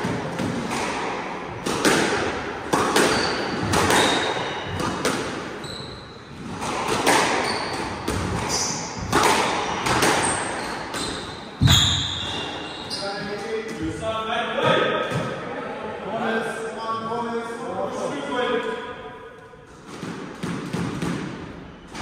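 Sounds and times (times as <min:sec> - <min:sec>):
squash ball hits: 0:00.0 - 0:05.6, 0:06.4 - 0:12.2, 0:19.8 - 0:22.0
shoe squeaks on wooden floor: 0:05.6 - 0:06.3, 0:07.4 - 0:09.0, 0:10.2 - 0:13.4.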